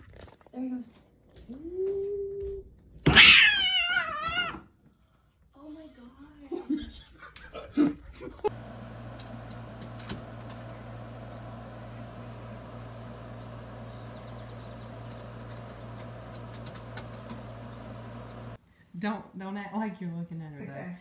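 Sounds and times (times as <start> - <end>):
low machine hum: 8.5 - 18.6
faint clicks: 14.2 - 18.5.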